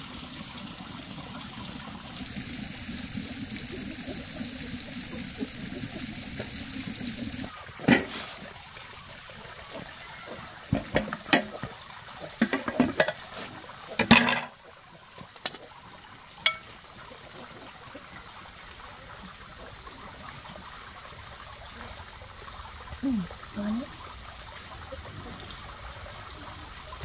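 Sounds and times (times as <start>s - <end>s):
metal pot clanking: 7.9s - 8.2s, 10.7s - 11.7s, 12.3s - 13.3s, 14.0s - 14.6s, 16.4s - 16.8s
ladle clinking on bowl: 16.4s - 16.7s.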